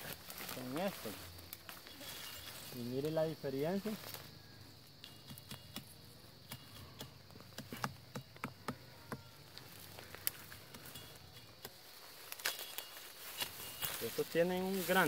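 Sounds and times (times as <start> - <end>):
twigs snapping and crackling: 0.0 - 2.7, 9.5 - 15.0
insects buzzing: 0.0 - 15.0.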